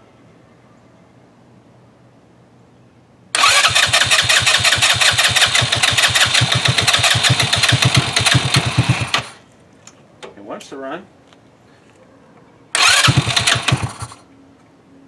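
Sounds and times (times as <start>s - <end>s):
engine cranking on starter: 3.4s - 9.4s, 12.8s - 14.2s.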